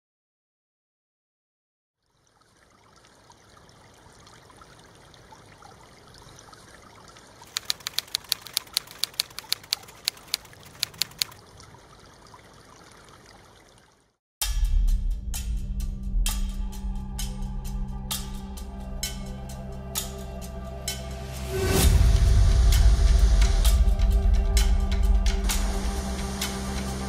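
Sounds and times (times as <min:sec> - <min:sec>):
water running and trickling: 0:02.0 - 0:14.2
rapid sharp clicks: 0:07.5 - 0:11.4.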